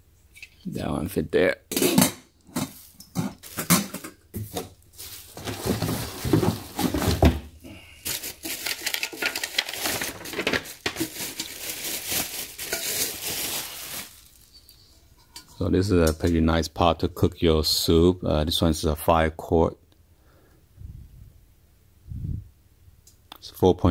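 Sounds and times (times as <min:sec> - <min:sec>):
cardboard rustling: 0:03.2 - 0:14.5
plastic packaging crinkling: 0:04.6 - 0:07.4, 0:08.0 - 0:14.8.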